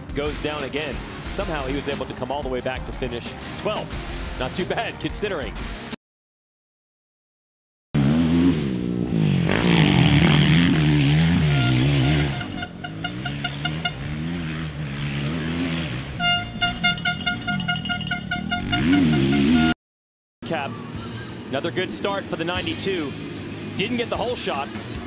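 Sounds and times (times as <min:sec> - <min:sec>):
motorbike engines revving: 0:08.0 - 0:19.8, 0:20.7 - 0:25.0.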